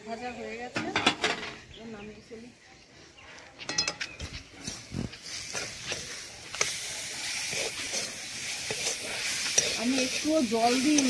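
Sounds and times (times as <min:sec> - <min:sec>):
greens sizzling in a pan: 0:04.2 - 0:11.0
metal spatula scraping a pan: 0:04.6 - 0:11.0.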